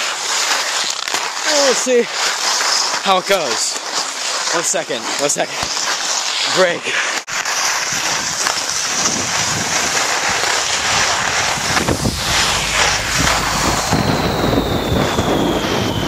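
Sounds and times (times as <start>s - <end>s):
skis scraping over snow: 0.0s - 15.0s
wind rushing over microphone: 8.0s - 16.0s.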